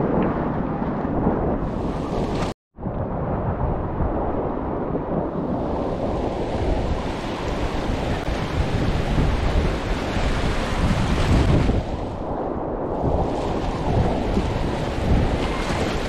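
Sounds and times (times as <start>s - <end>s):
whitewater rushing and churning: 5.6s - 12.2s, 13.0s - 16.0s.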